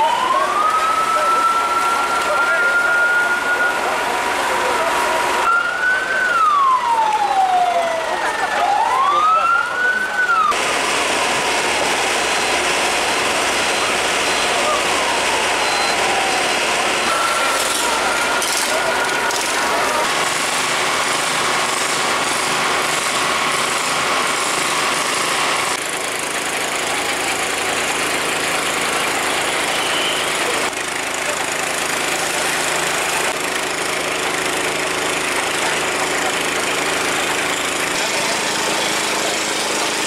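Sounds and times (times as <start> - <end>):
fire truck engines droning: 0.0 - 40.0.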